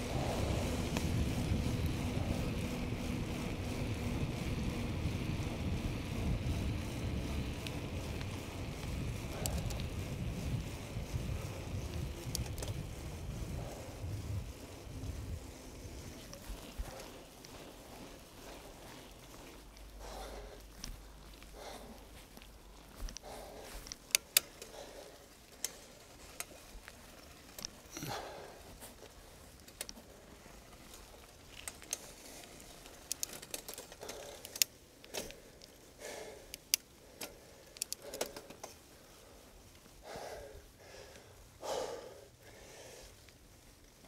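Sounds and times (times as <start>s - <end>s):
bicycle clicks and rattles: 0.0s - 44.0s
cyclist breathing hard: 0.0s - 44.0s.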